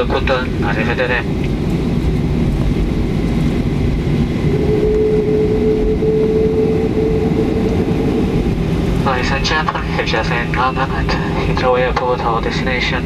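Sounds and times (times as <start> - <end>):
wheels rolling on taxiway: 0.0 - 4.6
aircraft engines idling rumble: 0.0 - 13.0
steady hum-like tone: 0.0 - 13.0.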